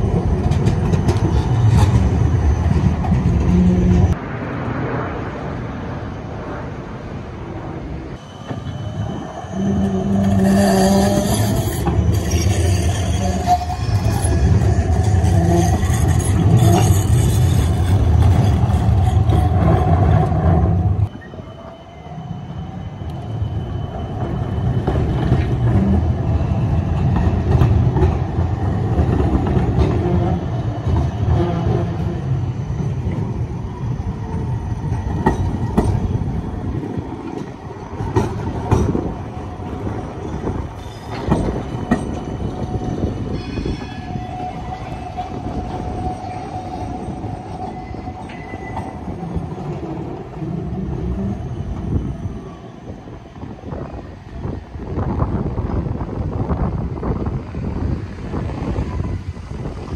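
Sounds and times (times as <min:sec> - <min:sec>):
clacks over rail joints: 0:00.0 - 0:04.2, 0:36.8 - 0:39.2
tram wheels rumbling: 0:00.0 - 0:59.9
tram whine: 0:00.0 - 0:59.9.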